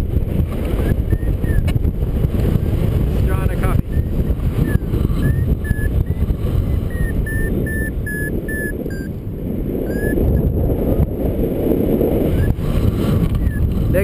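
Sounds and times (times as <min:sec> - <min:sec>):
wind rush on microphone: 0:00.0 - 0:14.0
variometer beeping: 0:00.8 - 0:02.7, 0:03.3 - 0:09.2, 0:09.8 - 0:10.6, 0:13.2 - 0:13.8.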